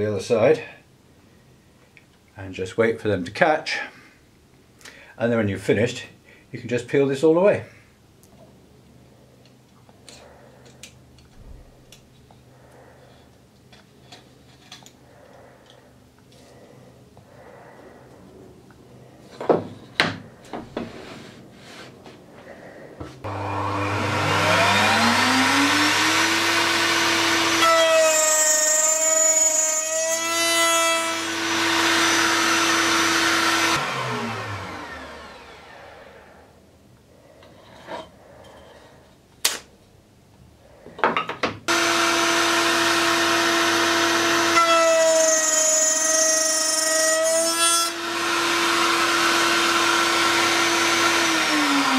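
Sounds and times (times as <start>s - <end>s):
router cutting wood: 23.2s - 36.0s, 41.7s - 51.9s.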